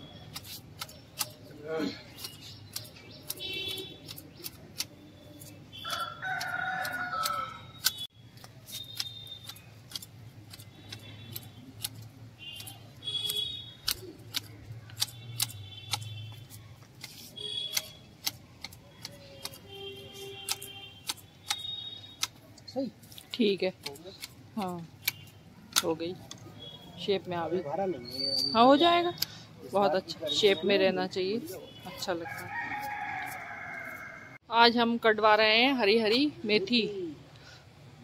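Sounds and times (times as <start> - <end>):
hedge shears snipping: 0.1 - 26.7, 30.4 - 33.9
rooster crowing: 5.8 - 7.8, 32.2 - 34.4.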